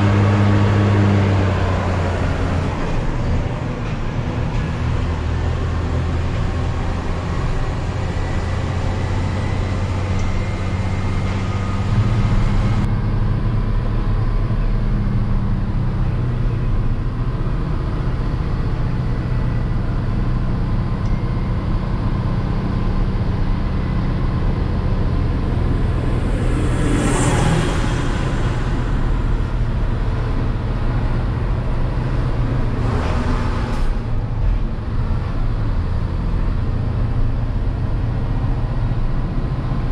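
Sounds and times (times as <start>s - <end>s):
road and tyre noise: 0.0s - 39.9s
truck diesel engine droning: 0.0s - 39.9s.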